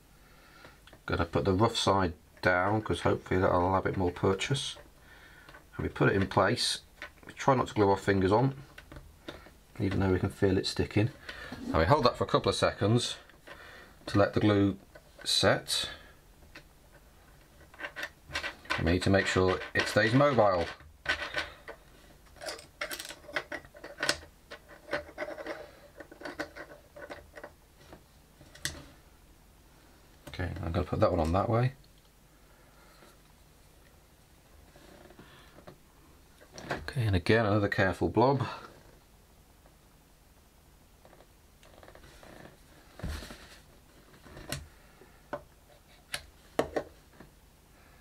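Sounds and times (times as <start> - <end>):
plastic parts clicking and tapping: 16.4 - 28.8.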